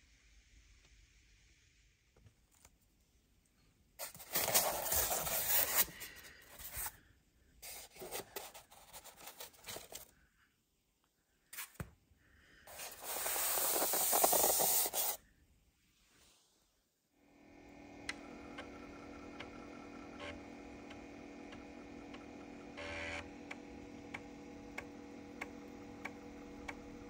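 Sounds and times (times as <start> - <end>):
polystyrene scraping and rubbing: 4.0 - 7.0, 12.7 - 15.2.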